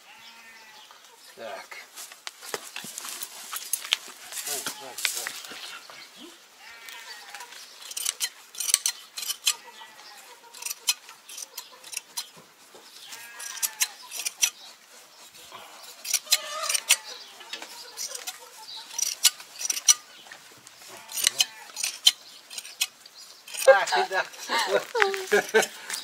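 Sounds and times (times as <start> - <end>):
sheep shears snipping fleece: 6.8 - 26.0.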